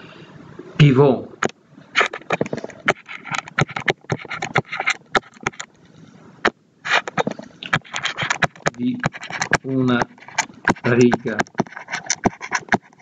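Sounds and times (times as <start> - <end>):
stylus tapping on tablet screen: 2.3 - 5.7, 6.4 - 13.0.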